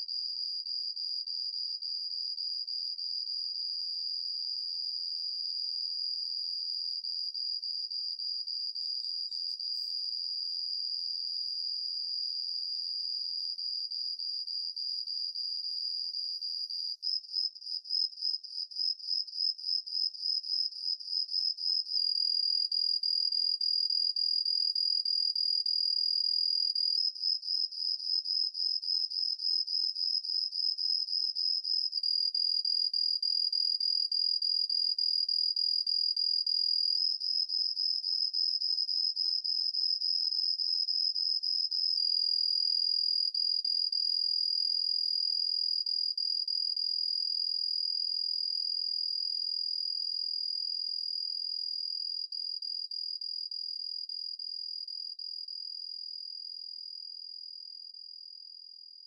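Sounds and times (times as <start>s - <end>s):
cricket high-pitched trill: 8.6s - 13.9s.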